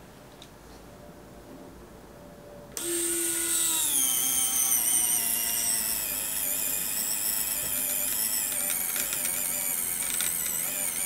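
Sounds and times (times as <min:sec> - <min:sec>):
electric winch motor whining: 0:02.8 - 0:11.0.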